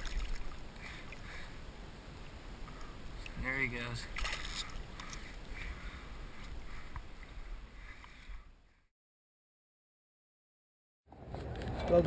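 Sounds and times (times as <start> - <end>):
water splashing: 0.0 - 2.4, 3.1 - 7.3.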